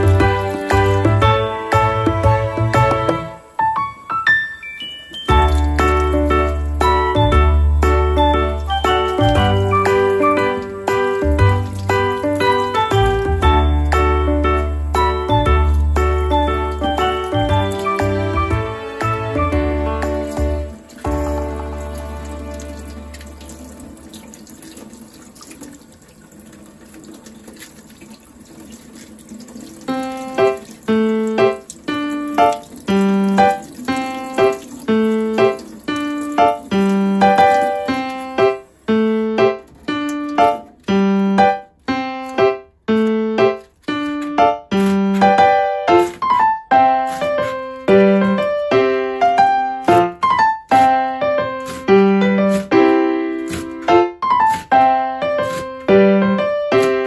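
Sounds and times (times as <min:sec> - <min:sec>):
tap water running into sink: 0:00.0 - 0:04.0, 0:04.8 - 0:48.8, 0:49.4 - 0:57.0
piano music: 0:00.0 - 0:25.7, 0:28.6 - 0:57.0.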